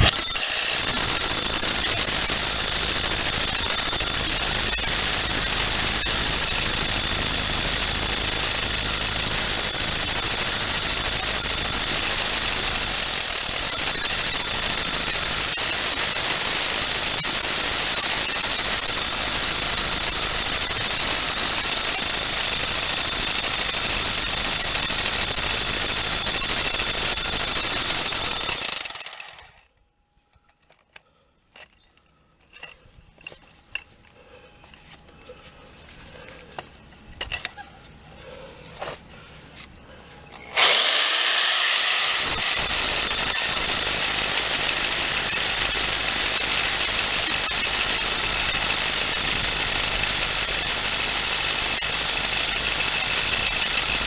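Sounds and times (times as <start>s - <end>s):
rotary hammer drilling into concrete: 0.0s - 29.6s, 40.4s - 54.0s.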